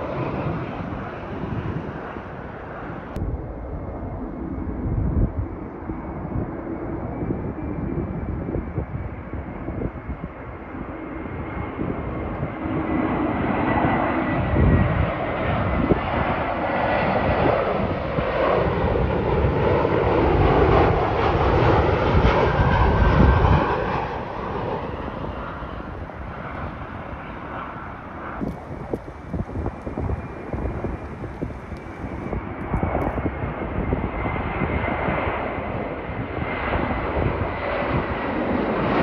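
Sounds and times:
jet airliner passing overhead: 0:00.0 - 0:39.0.

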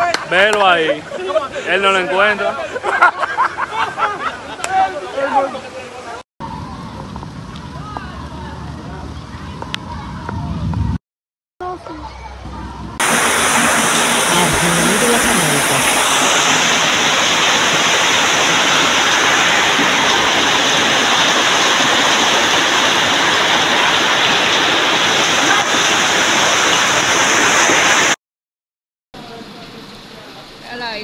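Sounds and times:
floodwater rushing: 0:13.0 - 0:28.2.

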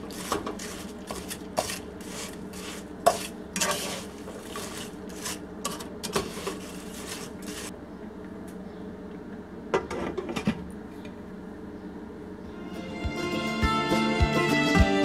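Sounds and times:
stirring food in frying pan: 0:00.0 - 0:07.8.

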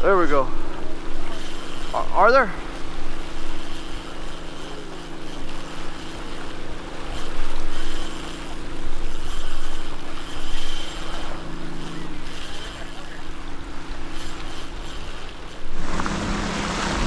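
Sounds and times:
sea surf: 0:00.0 - 0:17.0
steady low hum: 0:00.0 - 0:17.0
wind gusting over microphone: 0:15.6 - 0:17.0.

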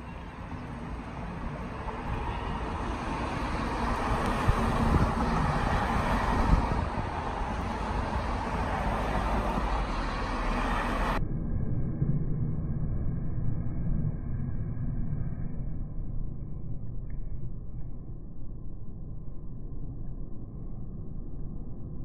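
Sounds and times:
street traffic rumble: 0:00.0 - 0:11.2.

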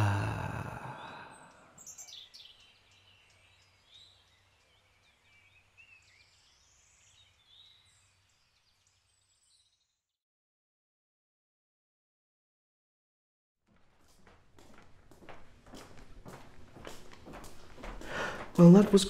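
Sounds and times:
birds chirping: 0:00.0 - 0:09.9, 0:18.0 - 0:19.0.

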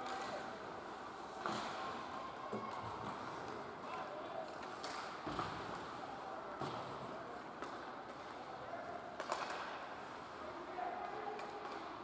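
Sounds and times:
hockey sticks and puck clacking: 0:07.6 - 0:08.3, 0:09.2 - 0:09.8, 0:11.0 - 0:11.9.

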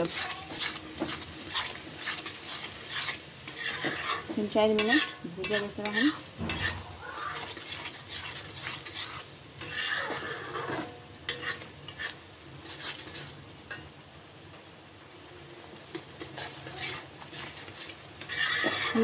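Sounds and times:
spoon scraping a pan: 0:00.0 - 0:14.0, 0:15.8 - 0:19.0
light sizzle: 0:00.0 - 0:19.0.

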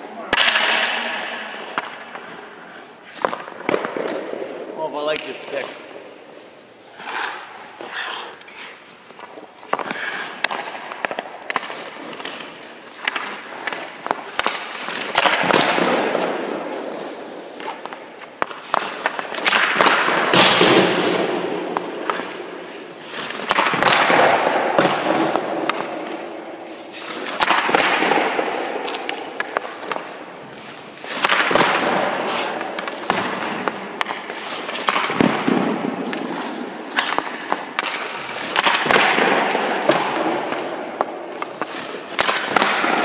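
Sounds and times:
stick and puck clicks: 0:00.3 - 0:06.1, 0:08.3 - 0:43.0
skate blades scraping ice: 0:00.3 - 0:43.0.

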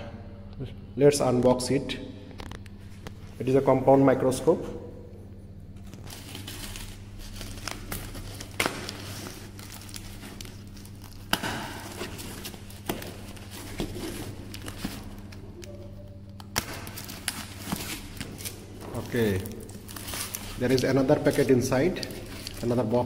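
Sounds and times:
low steady hum: 0:00.0 - 0:23.0
packing tape peeling off cardboard: 0:05.8 - 0:23.0.

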